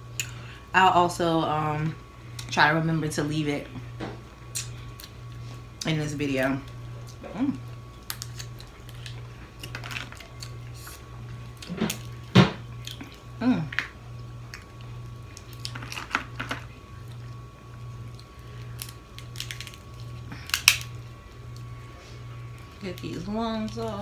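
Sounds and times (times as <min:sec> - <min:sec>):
low pulsing hum: 0:00.0 - 0:24.0
crab shell cracking: 0:07.9 - 0:10.6, 0:12.8 - 0:17.2, 0:18.1 - 0:21.7.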